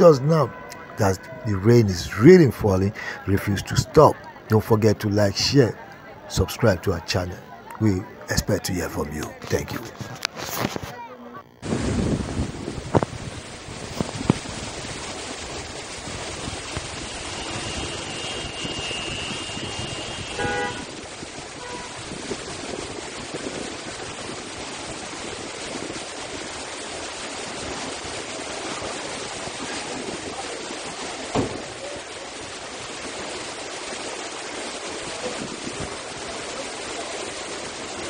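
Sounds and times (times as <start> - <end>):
vehicle horn: 0.0 - 1.7, 16.8 - 22.0
heavy rain hiss: 0.0 - 11.0, 11.6 - 38.0
traffic: 0.0 - 11.8, 15.2 - 22.8.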